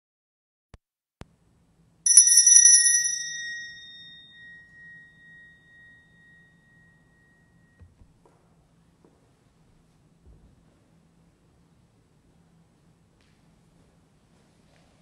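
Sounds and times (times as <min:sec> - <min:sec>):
small high-pitched bell ringing: 0:02.1 - 0:07.8.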